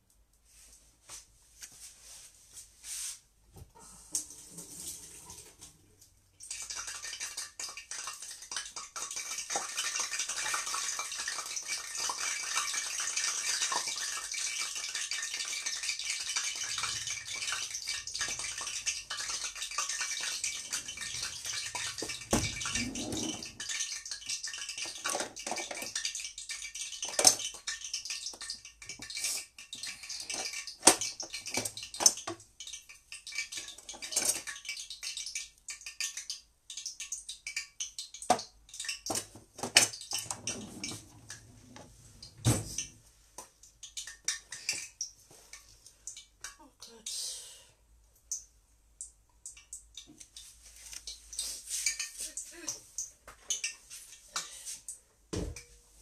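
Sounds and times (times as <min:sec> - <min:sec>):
hot oil sizzling in a frying pan: 0:06.4 - 0:22.3, 0:23.5 - 0:36.1.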